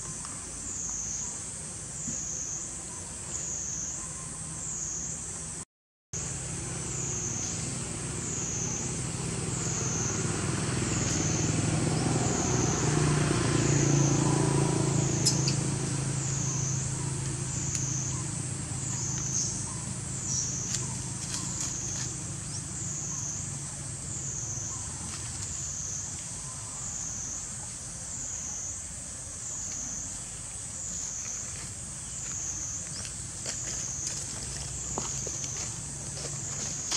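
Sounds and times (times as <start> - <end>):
wavering insect drone: 6.2 - 36.9.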